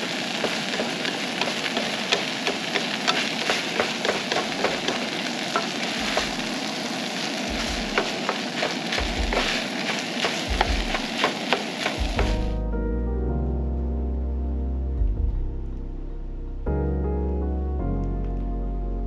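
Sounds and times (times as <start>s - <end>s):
wooden spatula scraping pan: 0.0s - 6.5s, 7.5s - 12.4s
rice sizzling in a frying pan: 0.0s - 12.6s.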